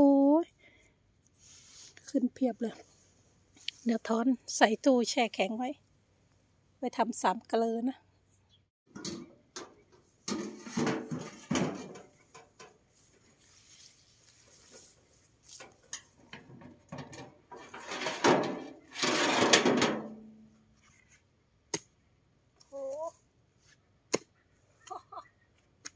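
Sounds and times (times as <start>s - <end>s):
shovel scraping clank: 10.2s - 12.6s, 15.6s - 20.5s
shovel clattering in metal tray: 10.3s - 12.0s, 17.6s - 20.2s.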